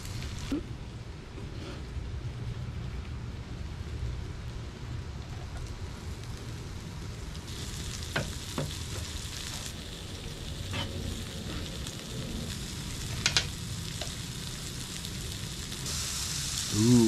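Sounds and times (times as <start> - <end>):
fish sizzling in oil: 5.6 - 17.0.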